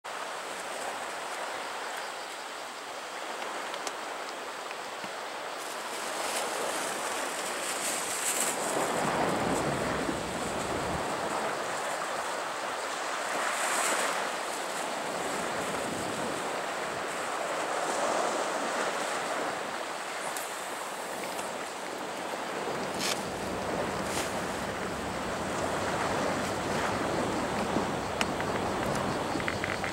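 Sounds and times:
sea water washing against rocks: 0:05.8 - 0:29.9
sharp ticks: 0:27.5 - 0:29.9.

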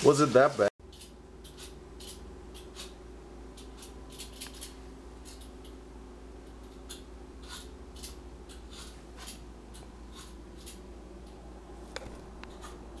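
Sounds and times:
steady low hum: 0:00.8 - 0:13.0.

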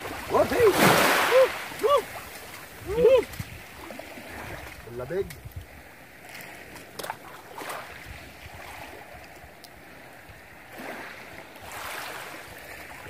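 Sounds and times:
sea water lapping in shallows: 0:00.0 - 0:13.0.

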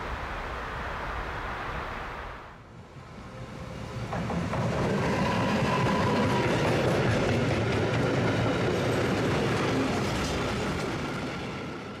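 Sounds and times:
train rumbling on track: 0:02.7 - 0:12.0.

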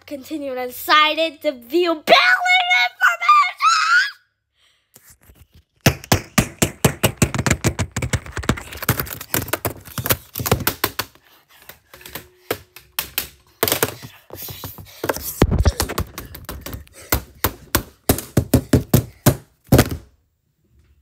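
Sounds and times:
frantic typing on keyboard: 0:06.8 - 0:11.2, 0:15.6 - 0:17.8.

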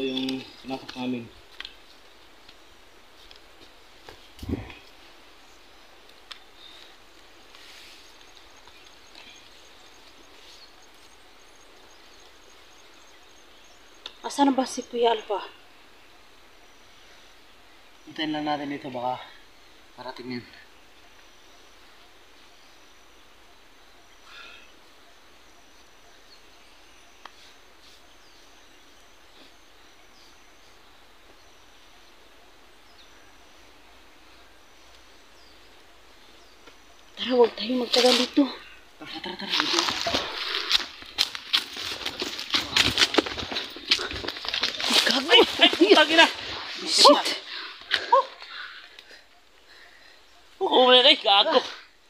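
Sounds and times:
steady hiss: 0:00.0 - 0:14.7, 0:15.5 - 0:41.6
small birds chirping: 0:00.0 - 0:52.0.

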